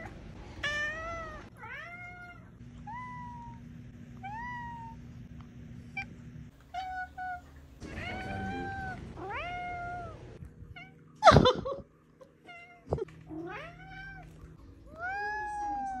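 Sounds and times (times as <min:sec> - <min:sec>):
cat meowing: 0:06.7 - 0:11.0, 0:14.9 - 0:16.0.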